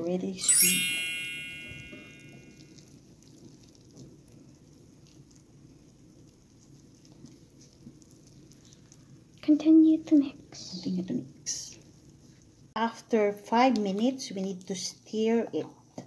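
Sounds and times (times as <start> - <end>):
ringing tone: 0.4 - 2.6
whisk stirring batter: 3.0 - 12.5.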